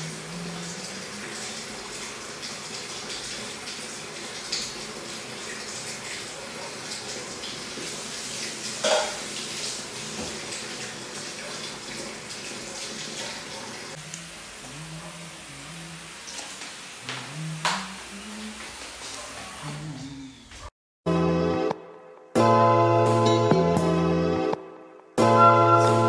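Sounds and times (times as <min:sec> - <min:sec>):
tap water running into sink: 0:00.0 - 0:14.7, 0:16.0 - 0:19.4.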